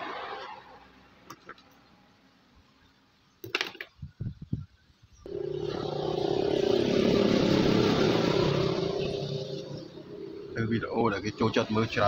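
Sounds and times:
wires clicking and knocking: 3.4 - 4.2
vehicle engine passing: 5.3 - 12.0.

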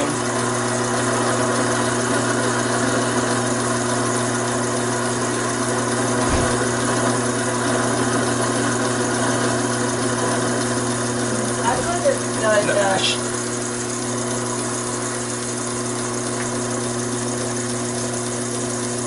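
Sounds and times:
lathe motor hum: 0.0 - 19.0
low bump: 6.2 - 7.2.

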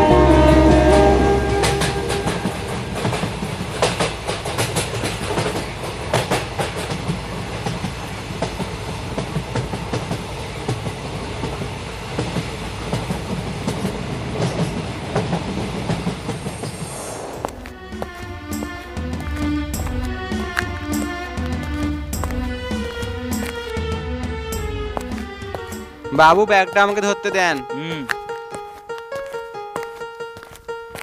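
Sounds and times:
wheels clacking over rail joints: 0.0 - 23.9
train rumbling on track: 0.0 - 28.4.

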